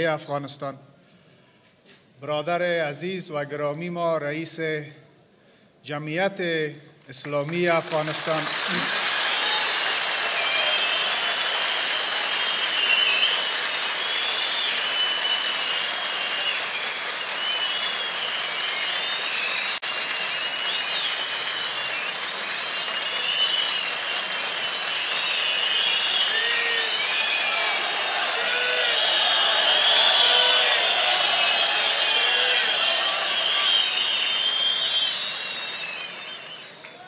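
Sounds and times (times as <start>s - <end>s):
audience applauding: 7.4s - 37.0s.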